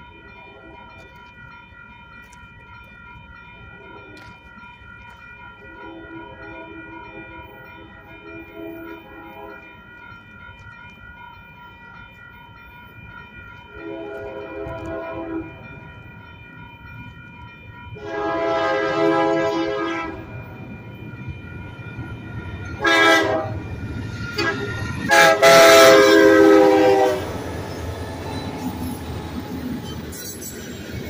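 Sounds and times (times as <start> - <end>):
crossing warning bell ringing: 0.0 - 31.0
locomotive horn blast: 13.8 - 15.6, 18.0 - 20.3, 22.8 - 23.6, 24.3 - 27.4.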